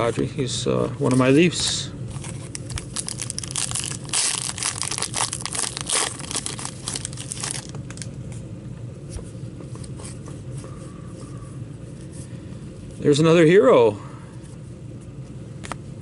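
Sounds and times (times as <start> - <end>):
foil wrapper tearing and crinkling: 2.2 - 8.1.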